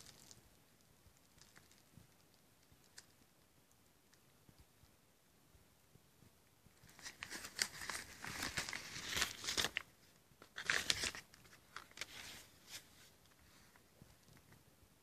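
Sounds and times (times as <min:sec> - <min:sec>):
paper mailer crinkling: 0:06.9 - 0:12.5.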